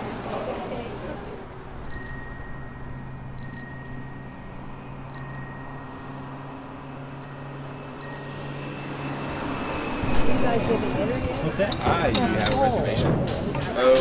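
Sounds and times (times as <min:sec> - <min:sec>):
bicycle bell ringing: 0:01.8 - 0:09.1, 0:10.4 - 0:11.9.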